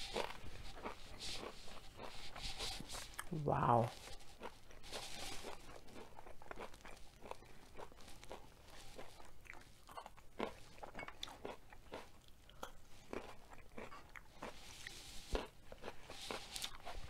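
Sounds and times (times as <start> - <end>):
wet mouth sounds: 0.0 - 6.2
person chewing crunchy food: 0.0 - 17.0.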